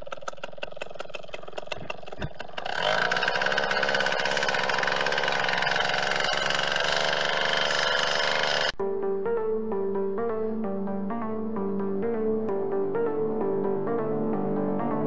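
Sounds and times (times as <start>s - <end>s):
engine cranking clicks: 0.0s - 8.8s
engine running buzzing: 0.0s - 8.8s.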